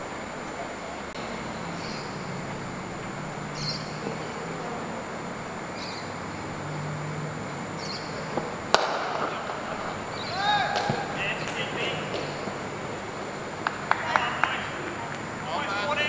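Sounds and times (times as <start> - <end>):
open-air ambience: 0.0 - 16.0
high bird chirp: 1.7 - 2.3, 3.5 - 4.0, 5.8 - 6.2, 7.8 - 8.3, 10.1 - 10.6
cricket bat striking ball: 8.3 - 12.7.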